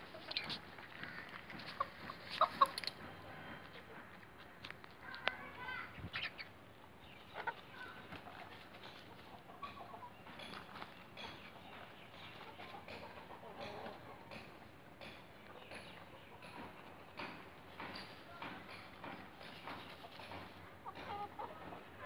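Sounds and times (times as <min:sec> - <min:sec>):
hens clucking softly: 0:00.0 - 0:04.2, 0:07.2 - 0:10.6, 0:11.2 - 0:14.8, 0:19.4 - 0:22.0
wings scuffing in dirt: 0:00.1 - 0:06.4, 0:07.2 - 0:14.0.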